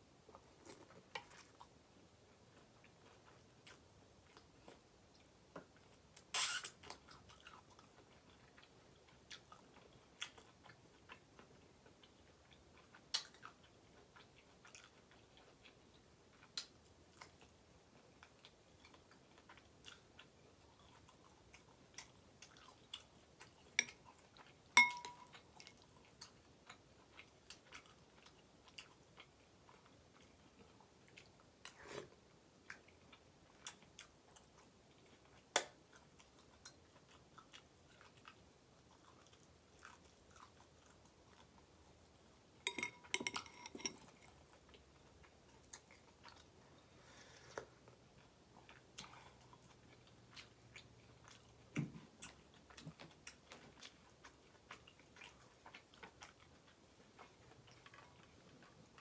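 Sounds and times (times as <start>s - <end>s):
person chewing noodles: 0.3s - 59.0s
fork clinking on glass bowl: 24.8s - 25.3s, 42.6s - 44.0s.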